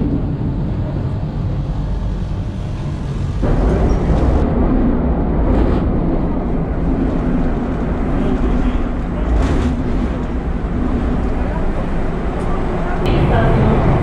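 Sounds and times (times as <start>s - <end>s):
train wheels rumbling: 0.0s - 14.0s.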